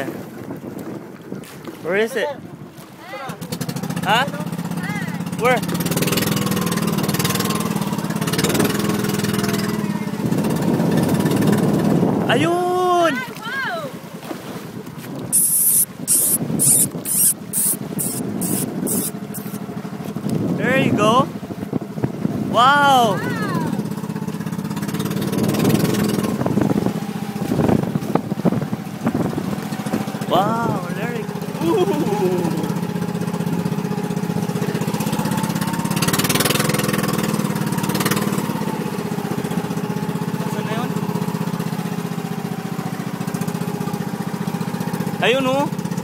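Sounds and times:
boat engine rumbling: 0.0s - 46.0s
short hissing bursts: 15.4s - 19.6s.

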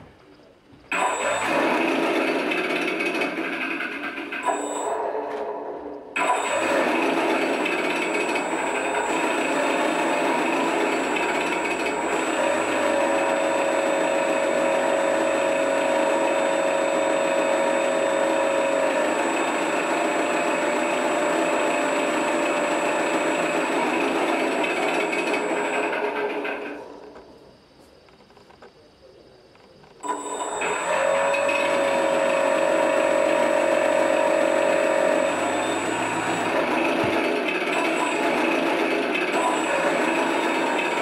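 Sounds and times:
simulated piston engine running: 0.9s - 5.2s, 6.2s - 27.0s, 30.0s - 41.0s
electric motor spinning propeller: 6.2s - 26.8s, 30.1s - 41.0s.

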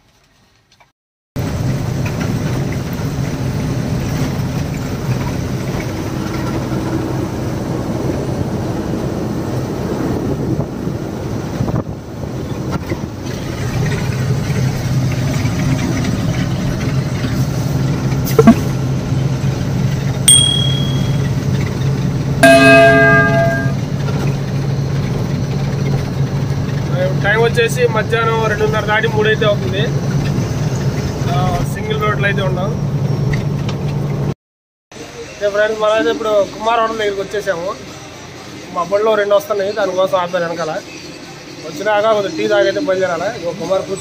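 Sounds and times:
short high beep: 20.3s - 21.3s, 22.4s - 23.8s
loud ringing bell-like tone: 20.3s - 21.4s, 22.4s - 24.0s.

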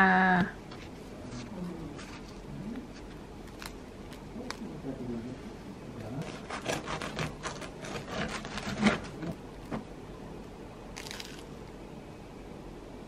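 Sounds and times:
bread knife sawing crust: 6.2s - 9.1s.

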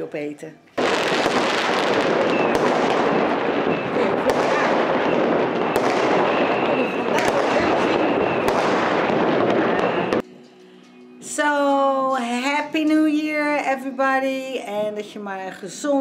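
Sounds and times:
fireworks crackling: 0.8s - 10.2s
sharp firework bangs: 0.8s - 10.2s.

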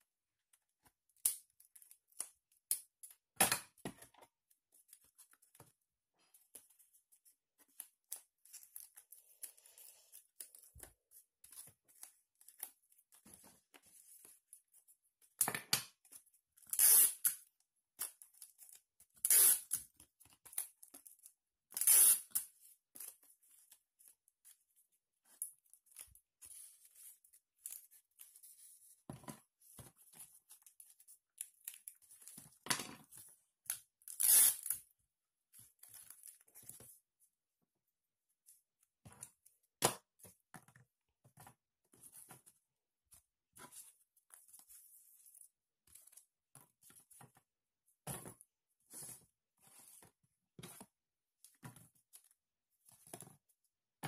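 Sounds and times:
sticky tape pulled and torn: 16.7s - 17.4s, 19.2s - 19.8s, 21.7s - 22.4s, 34.1s - 34.8s.

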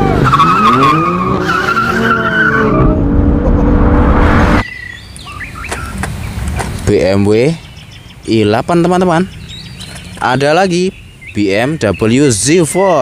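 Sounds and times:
car engines revving: 0.0s - 4.6s
tyres squealing: 0.2s - 3.0s.

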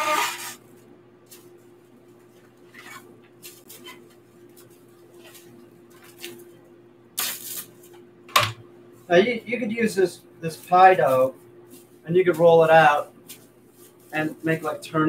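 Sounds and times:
faint steady hum: 0.0s - 15.0s
plastic wrap crinkling: 10.6s - 15.0s.

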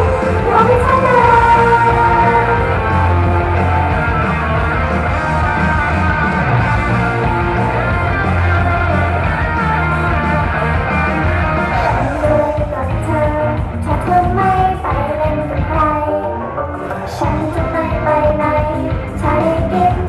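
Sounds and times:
woman singing: 0.0s - 3.2s, 12.0s - 16.3s, 17.1s - 20.0s
pop song over sound system: 0.0s - 20.0s.

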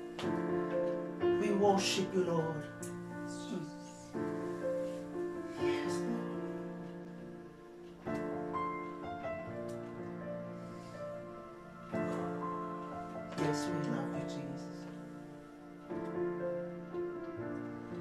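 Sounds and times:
electronic keyboard chords: 0.0s - 18.0s.

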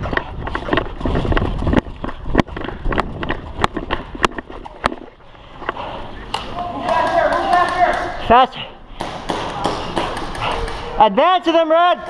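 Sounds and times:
hurried footsteps on concrete: 0.0s - 8.2s.

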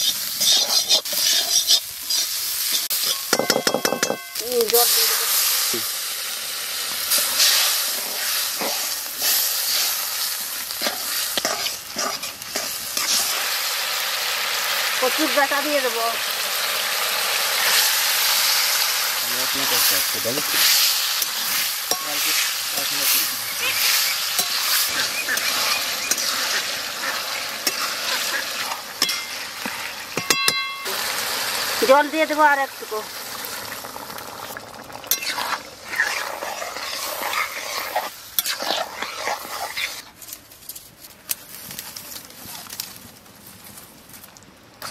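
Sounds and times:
metal spatula scraping a wok: 0.0s - 5.6s, 7.1s - 13.6s, 19.5s - 31.0s, 35.1s - 40.2s
fish sizzling in a wok: 0.0s - 40.2s
wooden spatula knocking pan: 3.2s - 4.3s.

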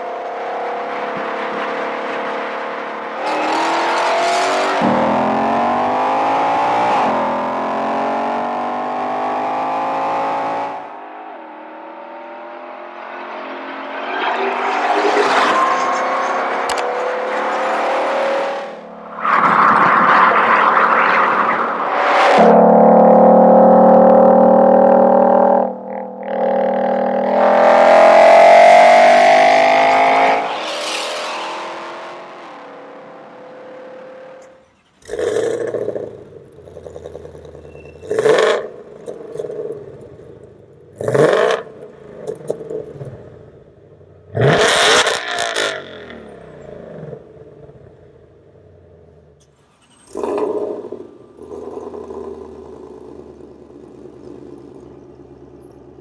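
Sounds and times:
car engine accelerating hard: 0.0s - 56.0s
car engine revving at idle: 35.0s - 41.6s, 50.2s - 56.0s.

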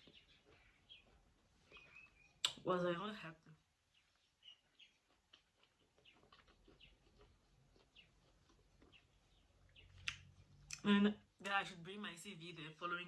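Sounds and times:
person chewing food: 0.0s - 2.5s, 4.4s - 10.8s.

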